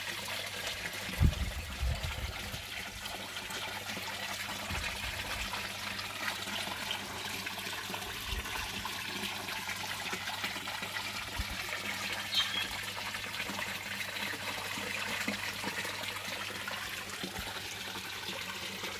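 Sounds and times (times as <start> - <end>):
water splashing and trickling: 0.0 - 18.9.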